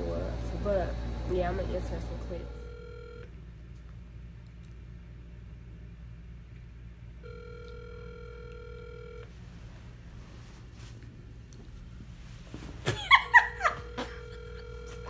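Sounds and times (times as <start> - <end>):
low steady hum: 0.0 - 15.0
phone ringback tone: 2.5 - 3.3, 7.2 - 9.3, 13.7 - 15.0.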